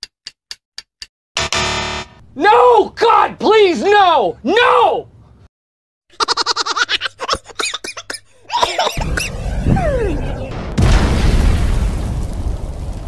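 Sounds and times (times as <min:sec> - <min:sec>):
cartoon laugh: 0:06.1 - 0:10.6
crash and explosion: 0:09.0 - 0:13.0.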